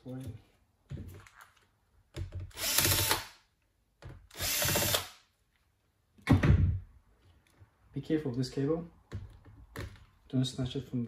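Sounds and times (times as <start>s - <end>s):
cordless drill running: 2.5s - 3.3s, 4.3s - 5.1s.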